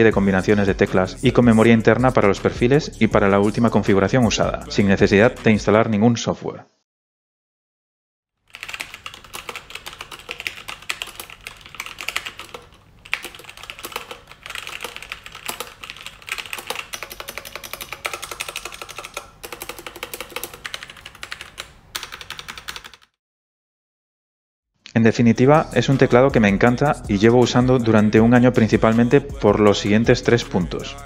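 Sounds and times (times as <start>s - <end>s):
mechanical keyboard typing: 8.5s - 23.2s.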